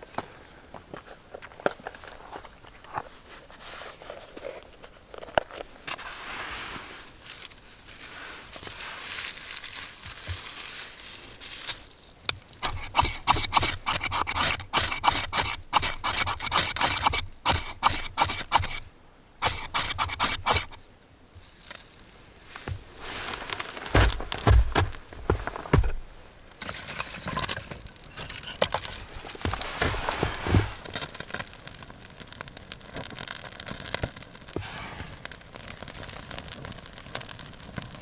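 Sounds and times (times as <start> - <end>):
knife scraping ferrocerium rod: 12.6 - 18.8, 19.4 - 20.8.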